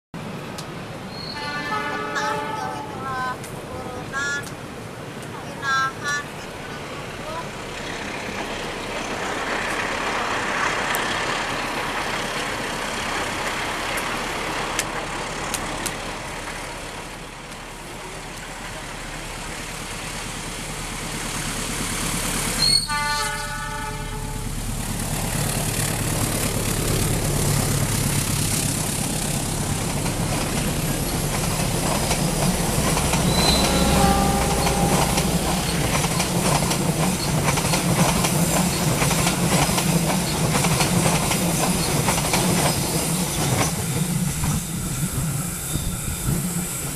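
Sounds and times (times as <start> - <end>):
locomotive engine rumble: 0.2 - 46.9
locomotive horn: 1.3 - 3.1, 22.6 - 24.6, 33.2 - 35.8.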